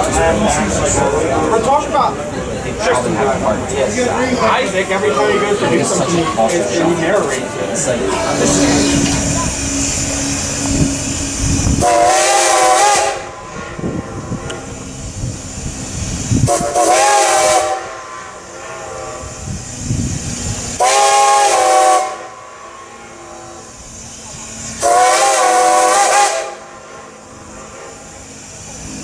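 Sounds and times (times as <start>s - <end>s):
steam locomotive chuffing: 0.0s - 29.0s
chime steam whistle blasts: 8.3s - 14.5s, 16.4s - 19.6s, 20.8s - 23.8s, 24.7s - 28.6s.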